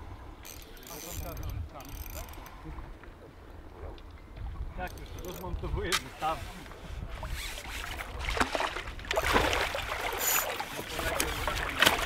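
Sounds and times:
water sloshing: 0:06.0 - 0:12.0
fish splashing at the surface: 0:07.6 - 0:12.0.

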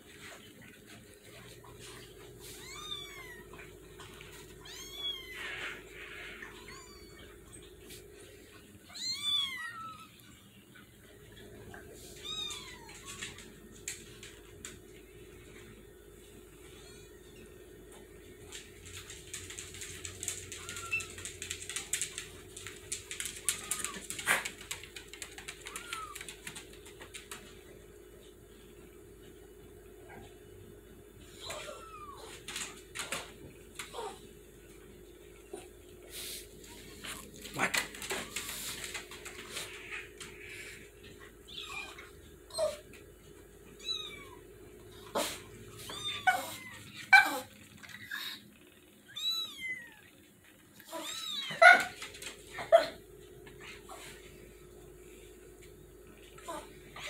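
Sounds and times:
kittens and cat meowing: 0:02.4 - 0:07.6, 0:08.8 - 0:10.4, 0:12.0 - 0:13.5, 0:20.2 - 0:21.4, 0:25.5 - 0:26.6, 0:31.2 - 0:34.2, 0:36.7 - 0:43.0, 0:43.7 - 0:54.2.

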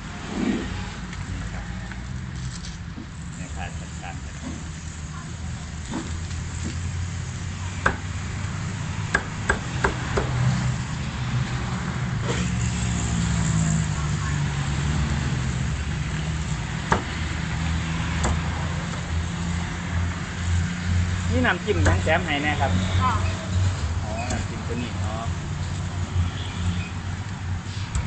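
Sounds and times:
cleaver chopping on wooden block: 0:07.8 - 0:08.1, 0:09.1 - 0:10.4, 0:18.2 - 0:19.0.

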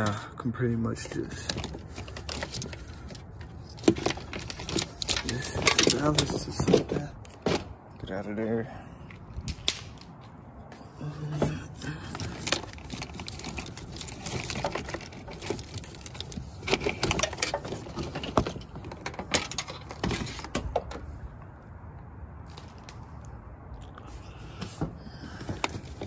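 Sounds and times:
wiring rustling and clicking: 0:01.1 - 0:08.1, 0:11.4 - 0:24.0.

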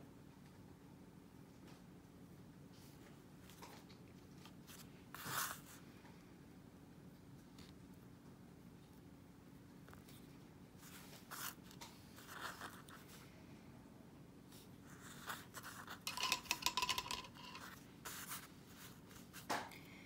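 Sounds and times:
clicks and scrapes: 0:15.6 - 0:18.5.

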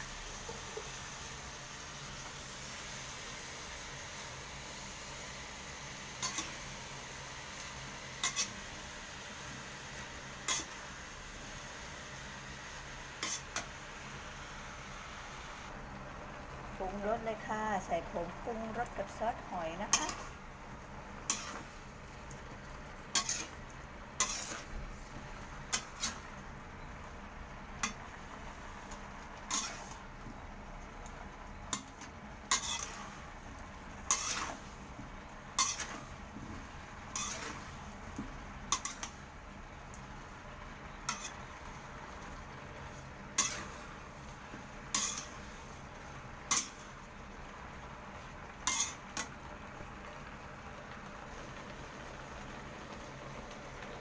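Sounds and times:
spatula scraping metal pan: 0:08.2 - 0:08.6, 0:10.4 - 0:10.8, 0:13.2 - 0:13.7, 0:23.1 - 0:23.6, 0:24.2 - 0:24.8, 0:25.7 - 0:26.3, 0:29.5 - 0:30.0, 0:31.7 - 0:33.2, 0:34.0 - 0:34.7, 0:35.5 - 0:36.2, 0:37.1 - 0:37.8, 0:38.7 - 0:39.2, 0:41.0 - 0:41.5, 0:43.4 - 0:44.0, 0:44.9 - 0:45.6, 0:48.6 - 0:49.0.

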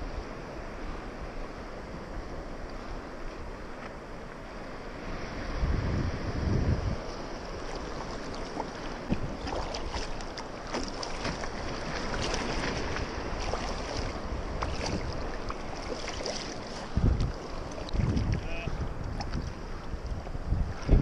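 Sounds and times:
low wind buffet: 0:00.0 - 0:21.0
wind rushing on microphone: 0:00.0 - 0:21.0
water splashing against kayak: 0:00.2 - 0:21.0
paddle strokes: 0:07.0 - 0:21.0.

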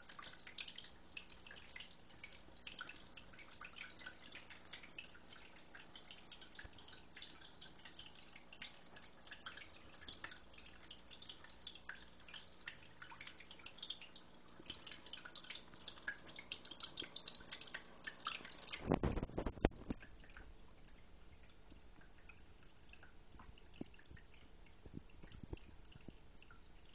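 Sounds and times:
small waterfall trickling: 0:00.0 - 0:26.9.

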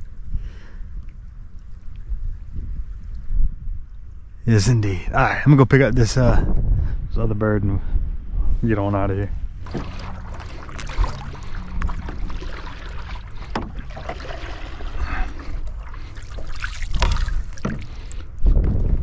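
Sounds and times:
wind rumble on microphone: 0:00.0 - 0:19.0
paddle splashing in water: 0:09.6 - 0:18.3.

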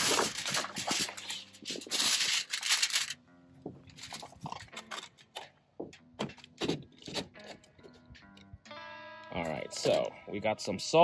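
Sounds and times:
aluminium foil crinkling: 0:00.0 - 0:03.2, 0:04.0 - 0:05.3
quiet background music: 0:00.0 - 0:11.0.

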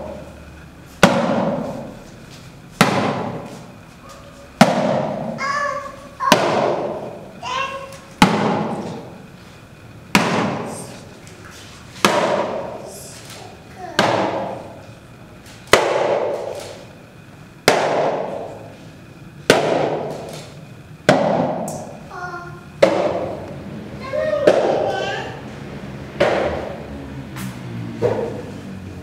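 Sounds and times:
sharp cracks echoing in a hall: 0:01.0 - 0:02.0, 0:02.8 - 0:03.7, 0:04.6 - 0:09.2, 0:10.1 - 0:10.9, 0:12.0 - 0:14.8, 0:15.6 - 0:16.9, 0:17.6 - 0:18.7, 0:19.4 - 0:22.0, 0:22.8 - 0:23.5, 0:26.2 - 0:26.8.

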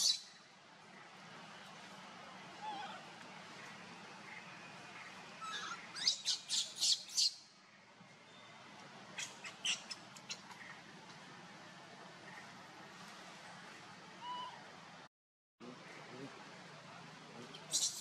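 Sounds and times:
infant monkey squealing: 0:05.4 - 0:07.3, 0:17.7 - 0:18.0.

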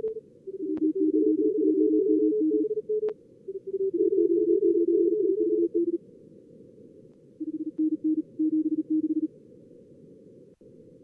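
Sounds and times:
morse code tones: 0:00.0 - 0:06.0, 0:07.4 - 0:09.3.

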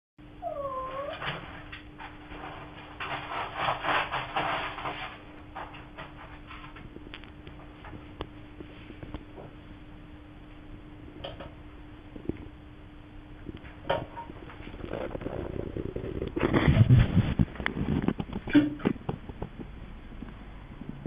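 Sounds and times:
cat meowing: 0:00.4 - 0:01.2
cat scratching and rustling: 0:01.0 - 0:08.1, 0:14.2 - 0:19.0.

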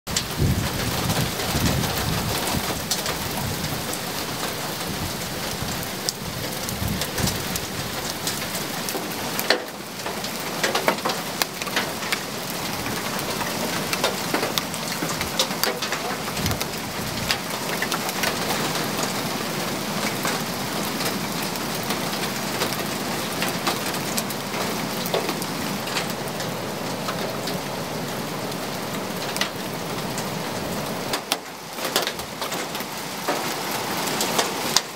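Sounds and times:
heavy rain and hail on roof: 0:00.1 - 0:34.9
low rumble of thunder: 0:00.2 - 0:04.0.

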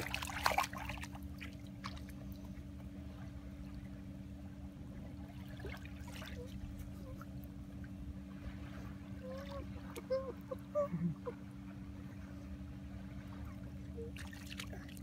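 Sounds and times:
water splash: 0:00.0 - 0:02.1
low steady rumble: 0:00.0 - 0:15.0
seawater lapping at shore: 0:00.0 - 0:15.0.

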